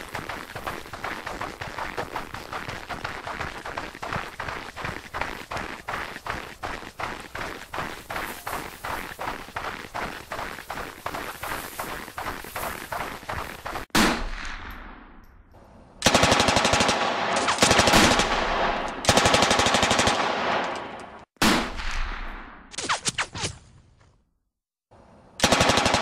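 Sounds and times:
single gunshots: 0:13.9 - 0:15.1, 0:20.2 - 0:22.7
rapid automatic gunfire: 0:16.0 - 0:20.6, 0:25.4 - 0:26.0.

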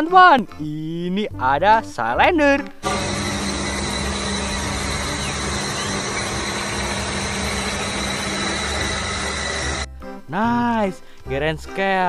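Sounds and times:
faint high whine: 0:02.8 - 0:09.9
road roller diesel engine running: 0:02.8 - 0:09.9.

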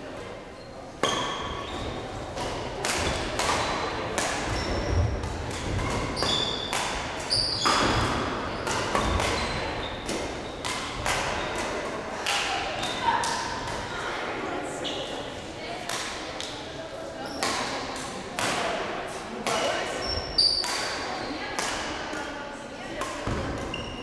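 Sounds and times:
shoes squeaking on court floor: 0:00.6 - 0:02.2, 0:04.5 - 0:10.8, 0:19.7 - 0:21.4, 0:23.6 - 0:24.0
racquet hitting shuttlecock: 0:02.4 - 0:13.9, 0:15.9 - 0:16.6, 0:17.4 - 0:22.3, 0:22.9 - 0:24.0.

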